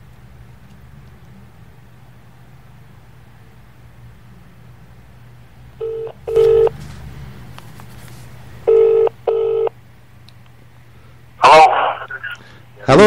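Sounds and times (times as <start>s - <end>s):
telephone ringing tone: 5.8s - 6.7s, 8.7s - 9.8s.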